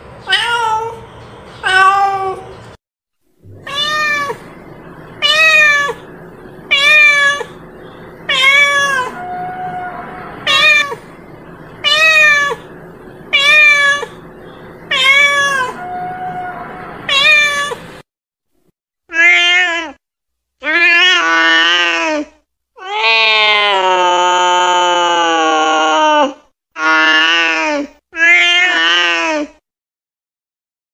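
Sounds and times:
cat meowing: 0.3 - 1.0, 1.6 - 2.5, 3.5 - 4.6, 5.2 - 6.1, 6.7 - 7.6, 8.2 - 11.2, 11.8 - 12.7, 13.3 - 14.2, 14.9 - 17.9, 19.1 - 20.0, 28.2 - 29.2
cat chirping softly: 6.7 - 11.0, 14.8 - 17.8.

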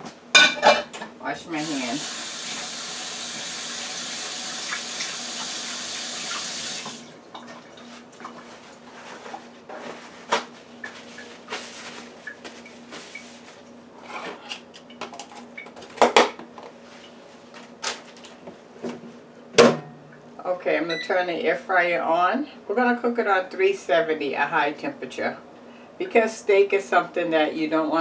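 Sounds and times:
kitchen tap running: 1.6 - 7.5
clicks and knocks of handling things: 14.1 - 16.8.

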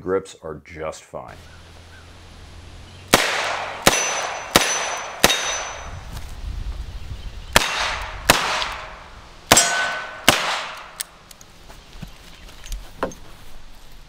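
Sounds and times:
revolver gunshots echoing: 3.1 - 6.0, 7.5 - 11.2.

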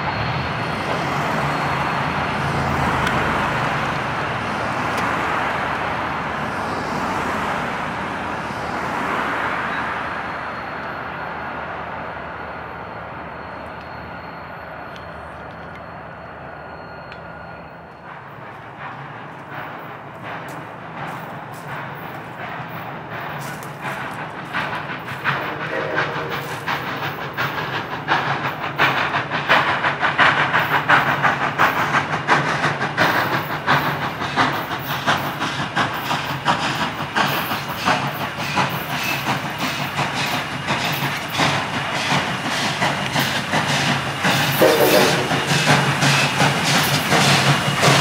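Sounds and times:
steam hissing: 18.0 - 48.0.

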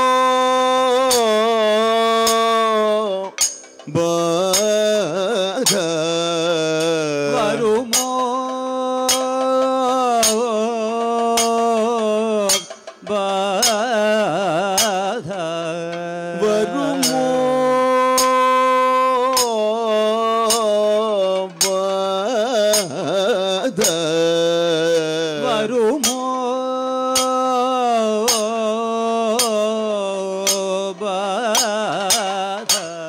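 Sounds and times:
two singers singing: 0.0 - 26.2
metallic gong and cymbal strikes: 16.7 - 18.4.

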